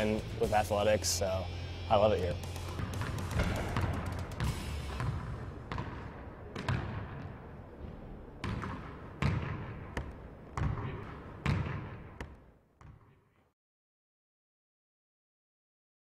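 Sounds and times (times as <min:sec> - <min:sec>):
basketballs bouncing on hardwood floor: 0:02.8 - 0:07.3, 0:08.4 - 0:13.2.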